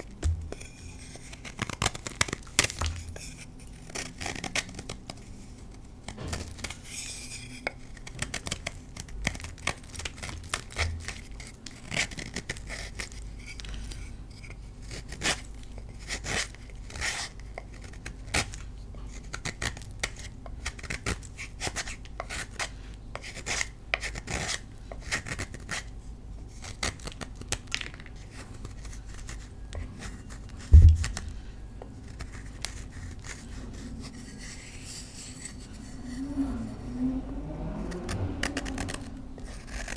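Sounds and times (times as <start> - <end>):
knife scraping chalk: 0.0 - 27.2, 28.2 - 31.3, 32.0 - 37.0, 37.9 - 39.9
low thump: 30.7 - 31.3.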